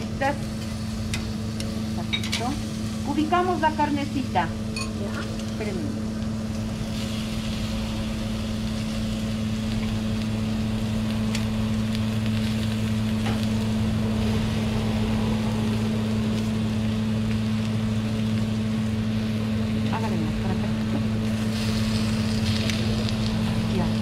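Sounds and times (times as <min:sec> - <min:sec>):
meat sizzling on a grill: 0:00.0 - 0:24.0
steady low hum: 0:00.0 - 0:24.0
metal tongs clicking on grill: 0:01.1 - 0:02.6.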